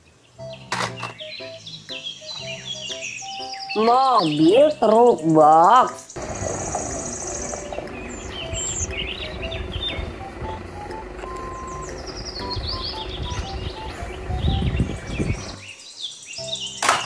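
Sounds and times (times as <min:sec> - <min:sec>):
birds chirping: 0:00.0 - 0:17.0
simple tune of short notes: 0:00.4 - 0:05.3, 0:07.5 - 0:15.6
truck diesel engine rumbling: 0:06.2 - 0:15.7.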